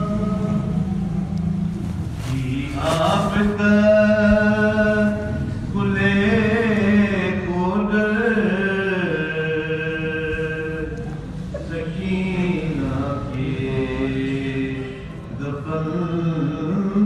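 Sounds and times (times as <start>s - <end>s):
steady low drone: 0.0s - 7.8s
man chanting: 2.2s - 10.9s.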